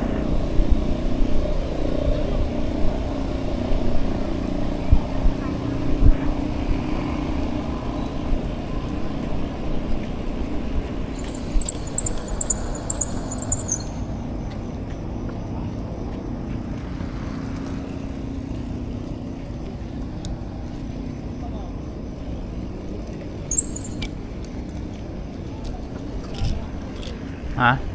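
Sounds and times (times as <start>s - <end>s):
passing traffic rumble: 6.4s - 14.8s
high-pitched chirps: 11.2s - 14.1s, 23.5s - 24.1s.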